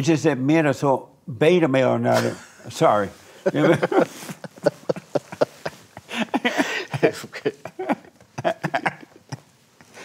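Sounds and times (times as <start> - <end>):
men laughing: 2.1 - 10.0.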